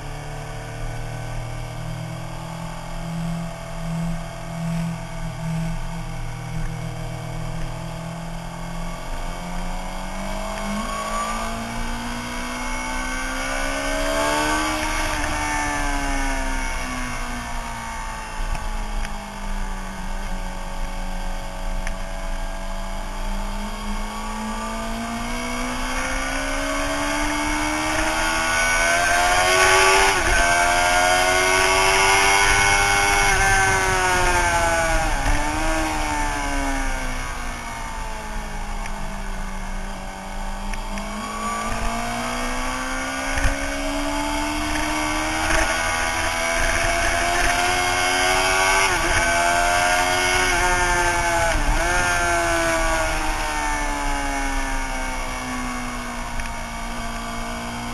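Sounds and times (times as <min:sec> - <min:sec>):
motorcycle engine revving: 0:00.0 - 0:57.9
wind rushing over microphone: 0:27.2 - 0:38.3.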